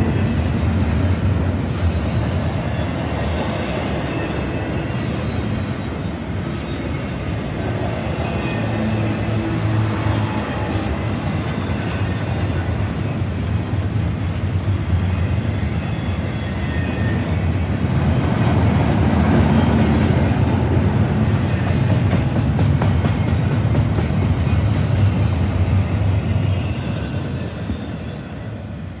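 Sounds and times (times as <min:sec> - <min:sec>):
freight train rumbling past: 0:00.0 - 0:29.0
train wheel clatter: 0:07.0 - 0:14.5, 0:21.1 - 0:28.2.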